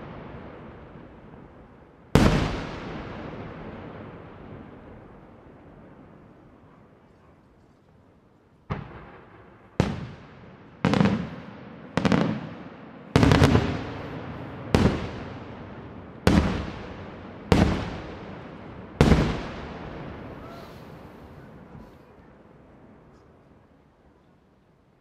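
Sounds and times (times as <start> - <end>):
firework shells booming: 2.2 - 6.2, 8.7 - 21.9.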